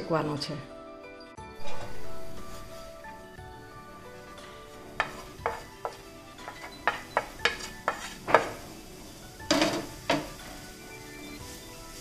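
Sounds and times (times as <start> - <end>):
plate knocking and scraping on pan: 5.0 - 8.6, 9.5 - 10.4.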